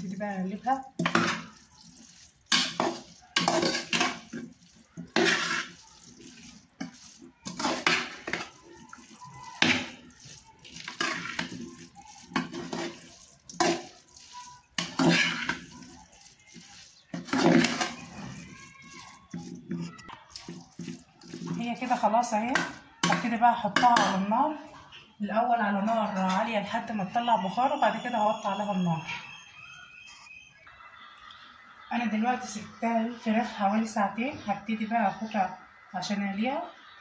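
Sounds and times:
metal spoon scraping a pot: 0.0 - 24.2.

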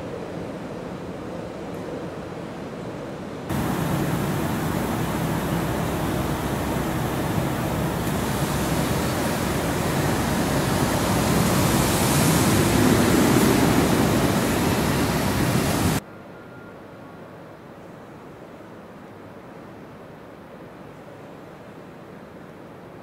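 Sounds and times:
lawn sprinkler spraying water: 3.5 - 16.0.

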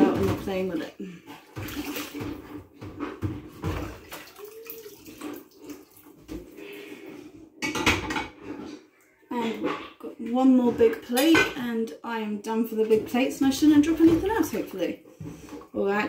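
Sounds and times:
dishes knocking and clattering: 0.0 - 0.8, 1.4 - 4.4, 7.4 - 11.6, 12.8 - 15.6
water splashing in a steel sink: 0.0 - 6.6.

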